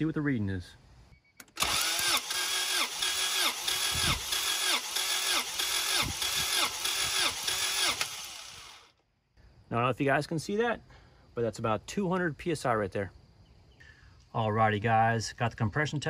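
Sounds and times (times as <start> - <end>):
starter motor cranking engine: 1.4 - 9.0.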